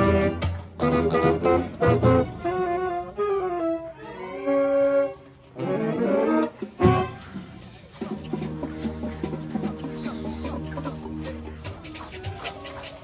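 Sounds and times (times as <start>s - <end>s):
tenor saxophone: 0.0s - 7.4s
marching band winds playing: 0.0s - 12.4s.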